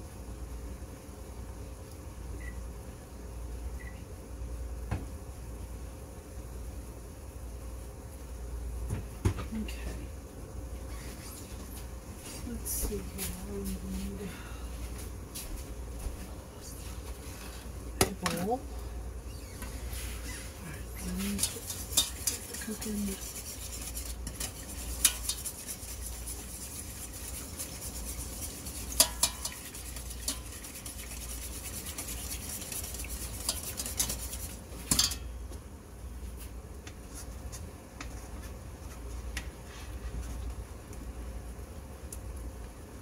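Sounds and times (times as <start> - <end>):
metal utensil scraping pot: 20.9 - 35.2
pot clanks: 21.4 - 22.7, 28.8 - 30.7, 33.3 - 35.3.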